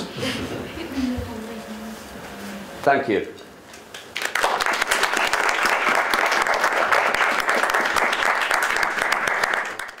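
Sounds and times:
audience applauding: 0:03.9 - 0:10.0.

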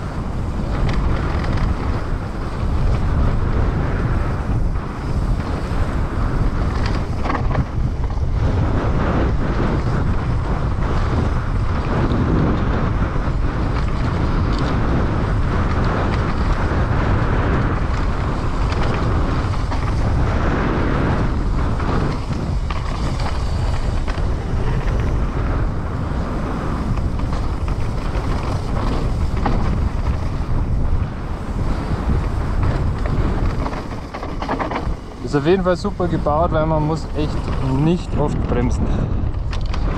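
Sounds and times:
bike clattering over rough ground: 0:00.0 - 0:39.9
bike tyres rolling: 0:00.0 - 0:39.9
wind rushing over microphone: 0:00.0 - 0:39.9.

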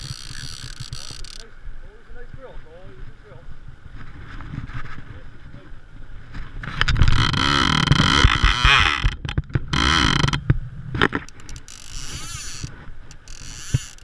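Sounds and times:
fishing reel click drag buzzing: 0:00.0 - 0:01.4, 0:11.2 - 0:14.0
wind on microphone: 0:02.1 - 0:13.9.

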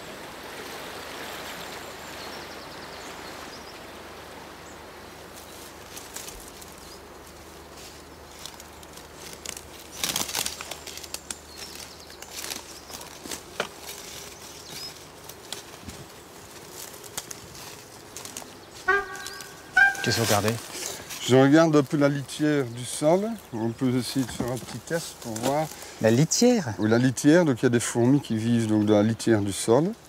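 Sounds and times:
rushing waterfall: 0:00.0 - 0:04.6
footsteps crunching through dry leaves: 0:05.3 - 0:26.1.

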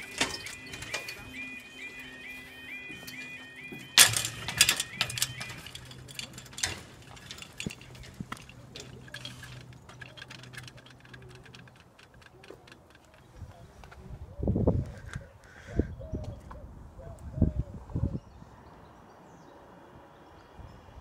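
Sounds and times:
level crossing alarm warbling: 0:00.0 - 0:08.2.

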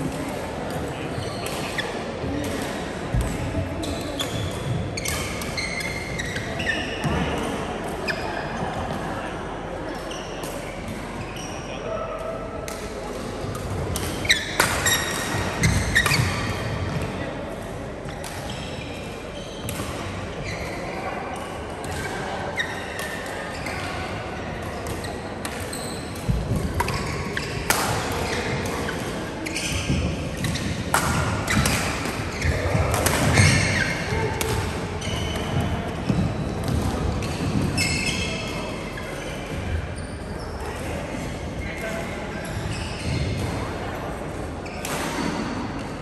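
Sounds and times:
shoes squeaking on court floor: 0:03.8 - 0:07.1, 0:14.1 - 0:17.0, 0:18.1 - 0:21.0, 0:21.8 - 0:24.0, 0:24.8 - 0:40.7, 0:42.3 - 0:43.5
rackets hitting shuttlecock: 0:24.8 - 0:37.7.

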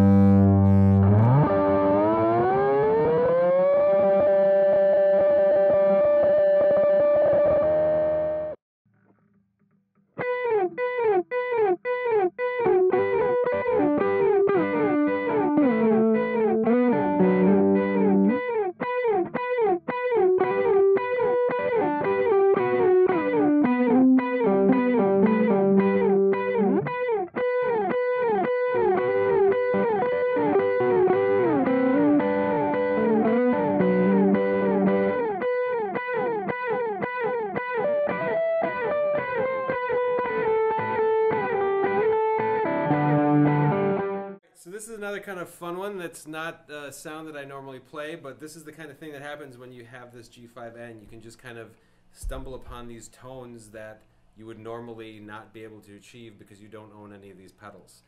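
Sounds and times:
electric guitar chord: 0:00.0 - 0:08.5, 0:10.2 - 0:44.4
chopped electric guitar notes: 0:00.0 - 0:08.6, 0:10.2 - 0:44.4.

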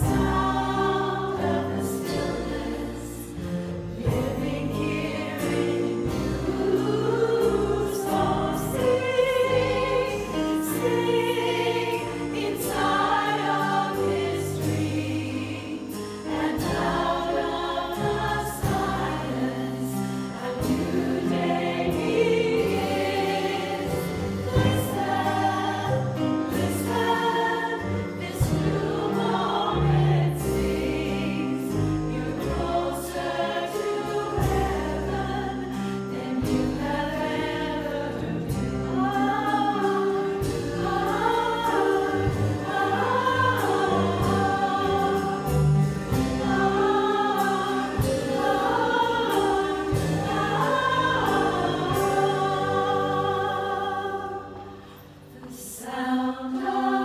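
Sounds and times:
upright bass: 0:00.0 - 0:54.5
choir singing in harmony: 0:00.0 - 0:57.0.

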